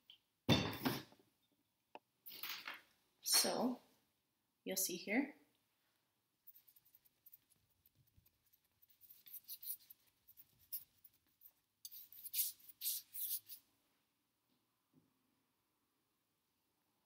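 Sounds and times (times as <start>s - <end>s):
paintbrush scratching on canvas: 6.4s - 13.6s.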